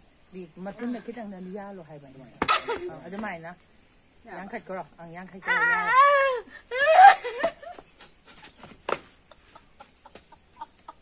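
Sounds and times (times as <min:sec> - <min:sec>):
woman squealing with laughter: 0:05.4 - 0:08.7
woman giggling: 0:06.2 - 0:11.0.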